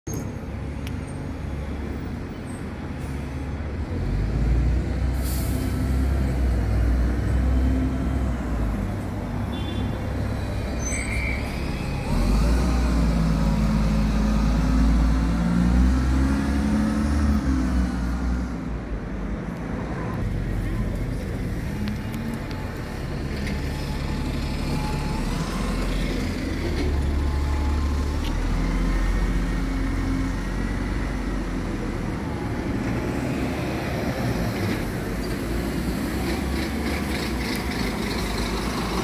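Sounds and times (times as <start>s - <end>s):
diesel bus engine rumble: 0.2s - 39.0s
air brakes hiss: 5.2s - 5.9s.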